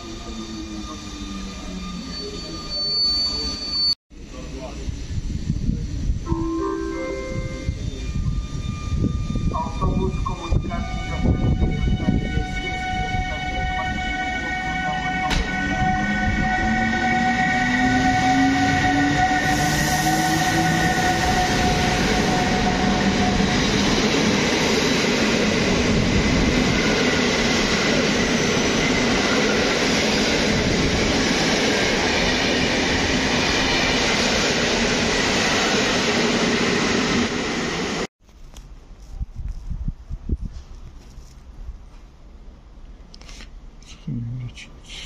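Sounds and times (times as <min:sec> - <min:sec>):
electric locomotive motor whine: 0:00.0 - 0:29.7
passenger coaches rolling past: 0:00.0 - 0:38.1.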